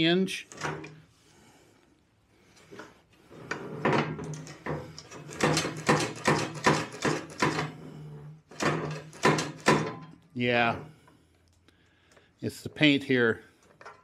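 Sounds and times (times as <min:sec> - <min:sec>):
chute swivel knocking and scraping: 0:00.5 - 0:01.0, 0:02.7 - 0:07.8, 0:08.5 - 0:10.1.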